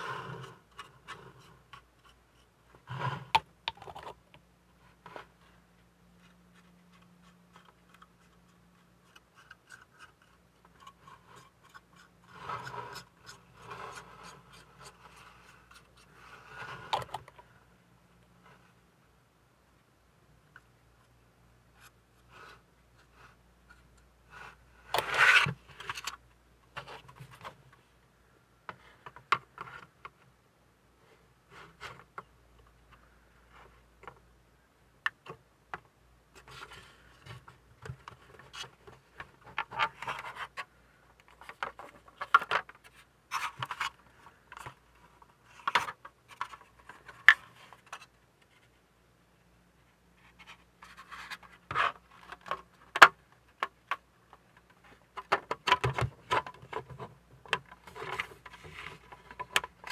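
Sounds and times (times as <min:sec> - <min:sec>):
plastic parts scraping and clicking: 0:00.0 - 0:05.6, 0:06.2 - 0:17.5, 0:21.8 - 0:27.8, 0:35.0 - 0:48.8, 0:50.2 - 0:59.9.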